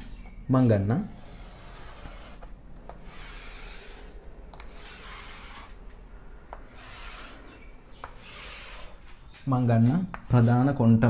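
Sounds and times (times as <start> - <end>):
chalk scraping on chalkboard: 1.0 - 5.8, 6.5 - 11.0
chalk tapping on board: 1.2 - 5.8, 8.0 - 10.8.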